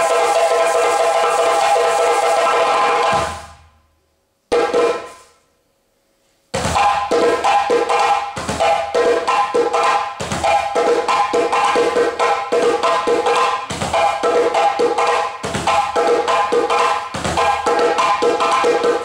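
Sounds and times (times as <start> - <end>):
djembe drumming: 0.0 - 3.6, 4.5 - 5.2, 6.6 - 19.0.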